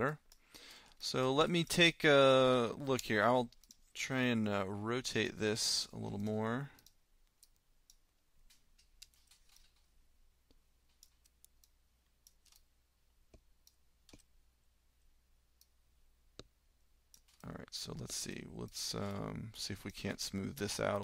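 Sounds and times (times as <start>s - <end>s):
computer mouse clicks: 13.3s - 14.3s.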